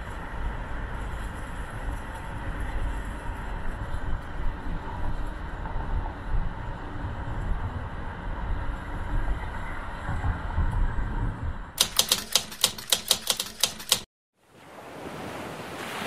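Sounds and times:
sharp rapid clicks: 0:11.8 - 0:14.1.

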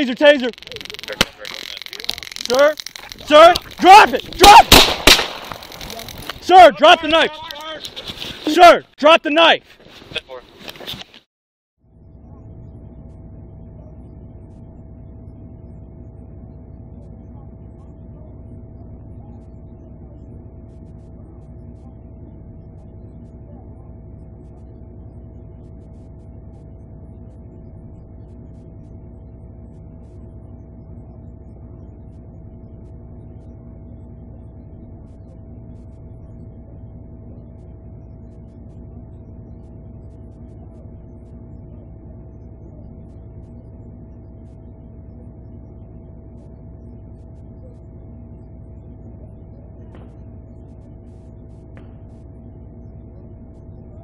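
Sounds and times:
constant mid-pitched tone: 0:00.0 - 0:11.2, 0:11.8 - 0:54.0
steady low hum: 0:00.0 - 0:54.0.

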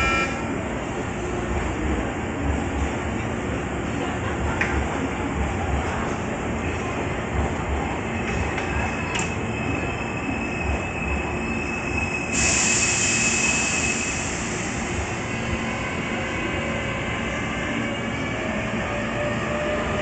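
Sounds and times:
air brakes hissing: 0:12.0 - 0:15.0.

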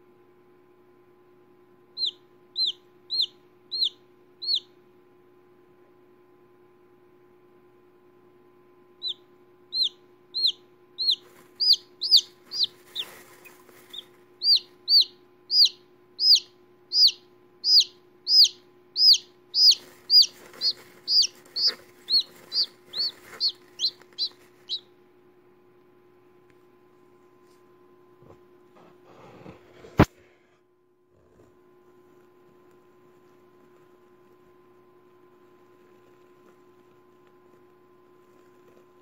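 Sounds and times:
chick peeping: 0:02.0 - 0:04.8, 0:09.0 - 0:24.9.

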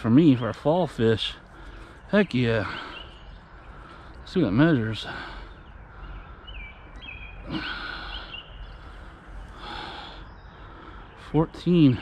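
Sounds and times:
faint bird chirps: 0:00.0 - 0:12.0
outdoor background hiss: 0:00.0 - 0:12.0
man breathing out heavily: 0:07.4 - 0:11.2.

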